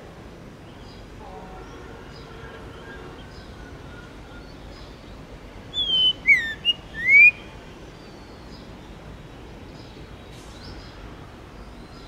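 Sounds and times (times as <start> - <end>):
bird singing clear whistles: 5.7 - 7.5
faint high bird calls: 5.7 - 8.6.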